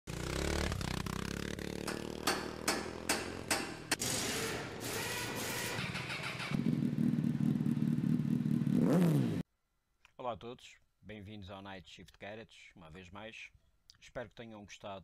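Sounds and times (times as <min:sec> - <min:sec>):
motorcycle engine running: 0:00.1 - 0:04.0, 0:05.1 - 0:09.4
sharp knocks: 0:01.8 - 0:04.0.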